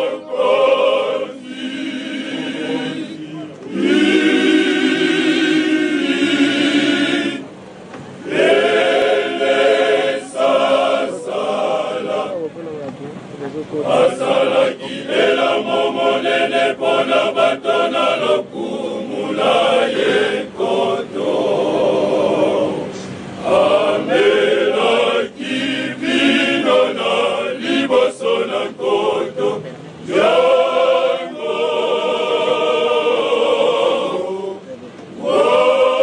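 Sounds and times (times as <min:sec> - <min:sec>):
male choir singing a cappella: 0:00.0 - 0:07.6, 0:08.2 - 0:12.6, 0:13.8 - 0:36.0.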